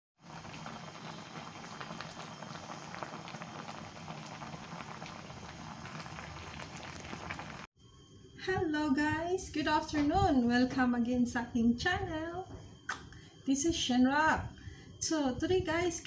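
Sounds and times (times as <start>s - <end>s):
soup bubbling at a boil: 0.2s - 7.7s.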